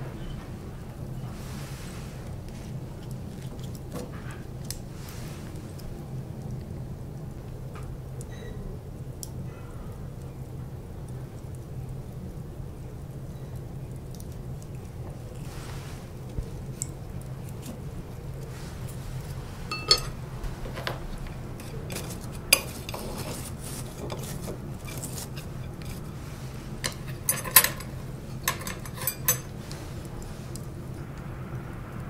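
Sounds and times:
chopsticks clinking on tableware: 0:19.7 - 0:21.0, 0:21.6 - 0:26.0, 0:26.8 - 0:29.6
low hum: 0:23.6 - 0:32.0.

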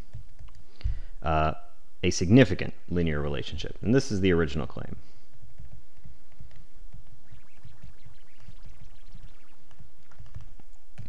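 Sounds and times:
stylus tapping on tablet screen: 0:05.3 - 0:11.0.

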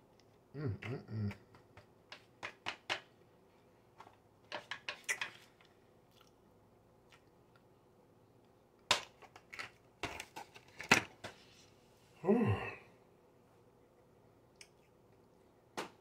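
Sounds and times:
person chewing with wet clicks: 0:05.1 - 0:07.8, 0:14.5 - 0:15.4.

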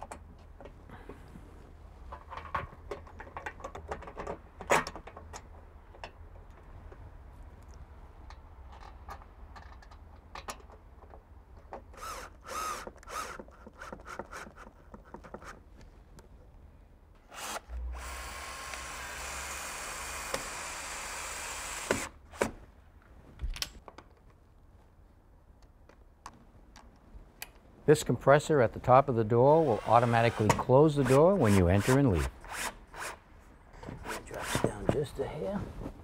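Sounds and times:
drill driver running: 0:17.3 - 0:22.1, 0:29.5 - 0:32.0.

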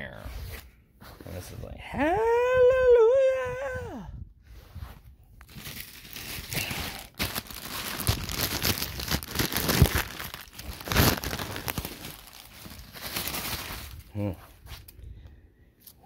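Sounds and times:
plastic bag crinkling: 0:05.4 - 0:14.2.

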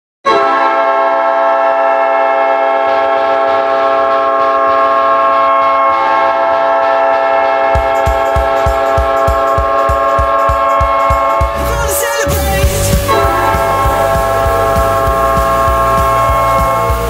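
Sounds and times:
goal horn blast: 0:00.3 - 0:17.0
drum beat: 0:07.8 - 0:17.0.

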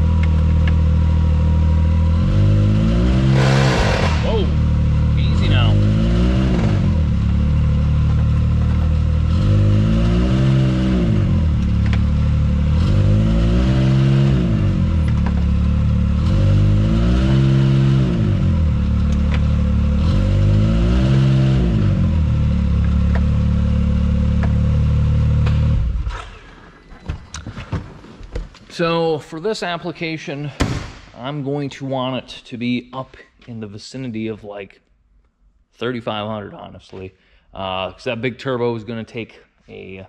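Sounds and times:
engine idling and revving: 0:00.0 - 0:26.4.

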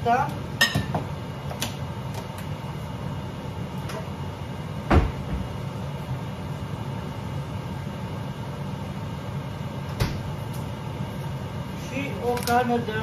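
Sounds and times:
steady low hum: 0:00.0 - 0:13.0
door shutting thump: 0:04.9 - 0:05.5, 0:10.0 - 0:10.2.

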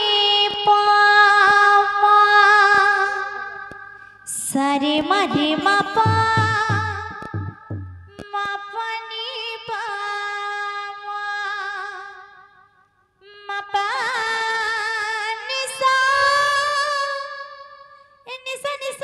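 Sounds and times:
woman singing devotional song: 0:00.0 - 0:07.3, 0:08.1 - 0:12.5, 0:13.2 - 0:19.0
drum strokes: 0:05.4 - 0:08.2.

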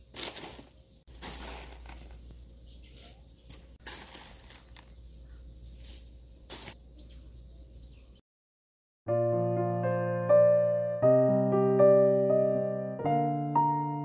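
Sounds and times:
dry toppings rustling into bowl: 0:00.0 - 0:04.9.

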